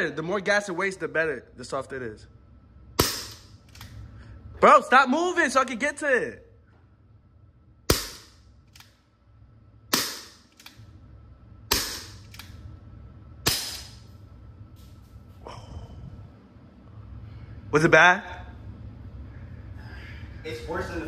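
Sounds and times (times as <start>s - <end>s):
bb revolver shots popping: 3.0s - 3.4s, 13.4s - 14.0s.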